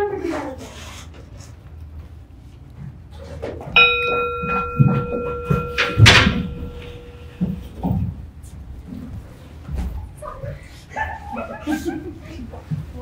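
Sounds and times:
bell-like ding ringing: 3.8 - 7.9.

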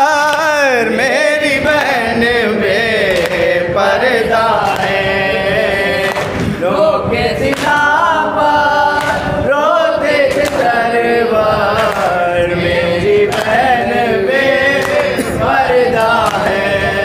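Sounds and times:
men chanting a lament in chorus: 0.0 - 17.0.

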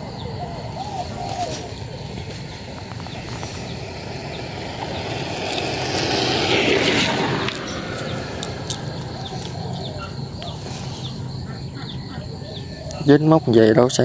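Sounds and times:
motor running: 2.2 - 9.8.

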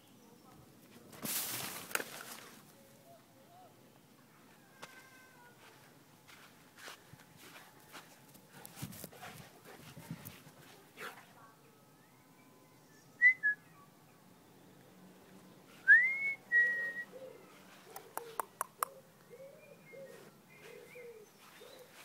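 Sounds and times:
person whistling: 15.9 - 17.1.

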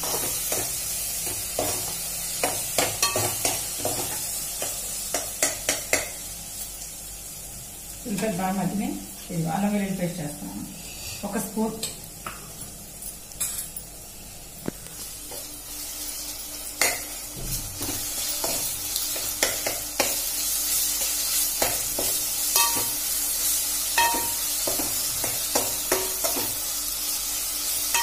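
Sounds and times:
food sizzling in hot oil: 0.0 - 28.0
spoon clinking and scraping pot: 3.0 - 4.0, 21.6 - 23.0, 24.0 - 24.9.

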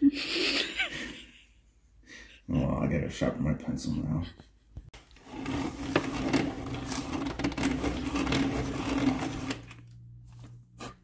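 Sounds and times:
electric pencil sharpener grinding: 5.2 - 9.9.

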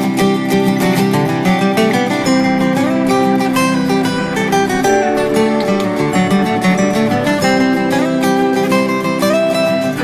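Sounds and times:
acoustic guitar music: 0.0 - 10.0.

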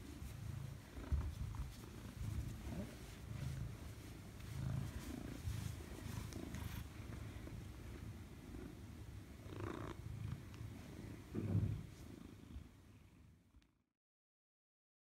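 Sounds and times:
hand stroking fur: 0.0 - 8.0
cat purring: 0.0 - 13.7.

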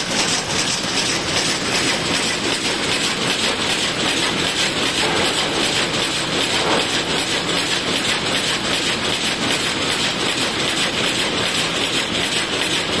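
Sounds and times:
loom clattering: 2.5 - 8.9.

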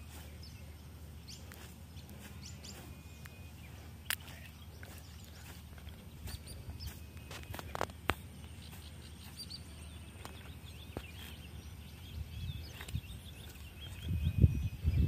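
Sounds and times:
birds chirping: 0.0 - 15.0
low outdoor rumble: 0.0 - 15.0
sharp snaps: 4.0 - 4.6.

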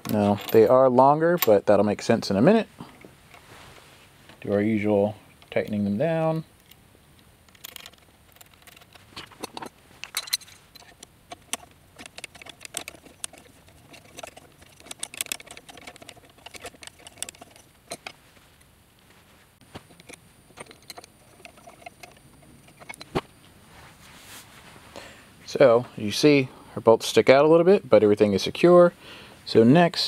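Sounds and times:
hand tool tightening screws on metal: 7.5 - 18.2, 19.9 - 23.1.

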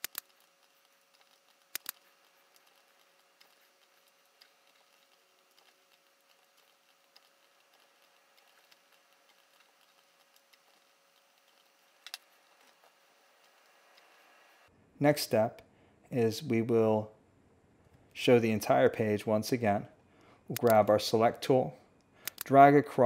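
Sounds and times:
sharp clicks: 0.0 - 12.8, 20.5 - 21.0, 22.0 - 22.6
faint steady hum: 0.0 - 23.0.

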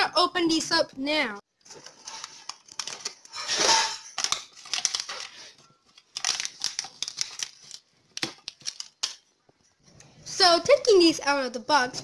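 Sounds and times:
foil seal crinkling: 1.7 - 3.5, 4.1 - 9.3.

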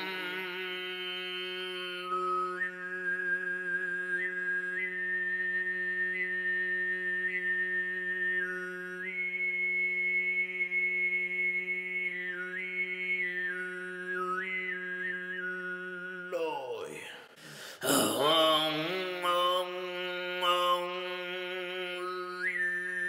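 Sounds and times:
man throat singing: 0.0 - 2.6, 15.8 - 23.0.

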